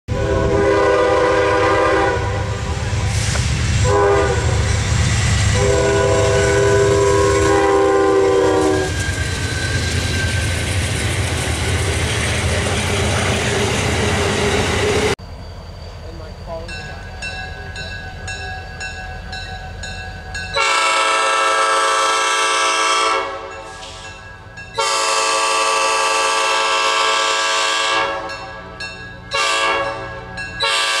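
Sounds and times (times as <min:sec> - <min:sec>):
train air horn blasts: 0:00.1 - 0:09.0, 0:20.5 - 0:24.0, 0:24.8 - 0:31.0
train rumbling and clattering: 0:00.1 - 0:31.0.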